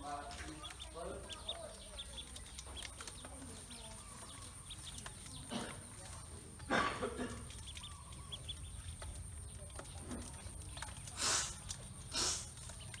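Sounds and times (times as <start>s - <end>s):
ducklings peeping: 0.0s - 13.0s
scrabbling in metal basin: 0.0s - 13.0s.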